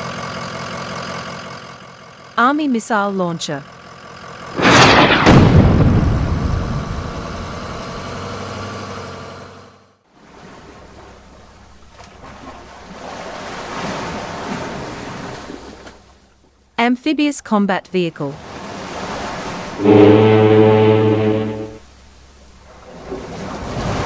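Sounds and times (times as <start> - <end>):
cartoon blast rumbling: 4.6 - 8.4, 19.8 - 21.8
waves and churning water: 10.1 - 16.1, 18.3 - 21.8, 22.6 - 24.0.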